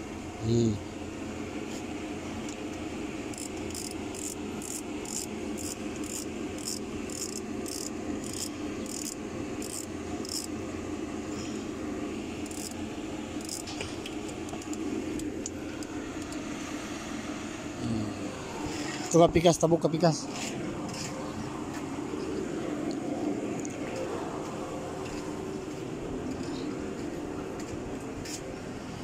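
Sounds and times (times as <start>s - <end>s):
steady low hum: 0.0s - 29.0s
insect chirping: 3.3s - 10.5s, 12.4s - 12.8s.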